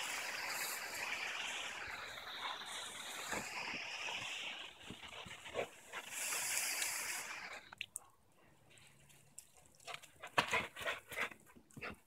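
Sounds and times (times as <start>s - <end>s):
dog splashing on wet grass: 0.0s - 7.6s, 8.7s - 12.0s
lawn sprinkler spray hissing: 0.0s - 7.8s.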